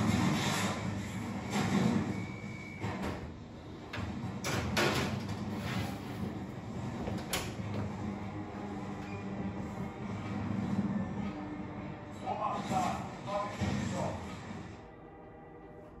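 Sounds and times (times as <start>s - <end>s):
oven door opening clatter: 2.8s - 8.0s
oven door clanking shut: 4.4s - 5.6s.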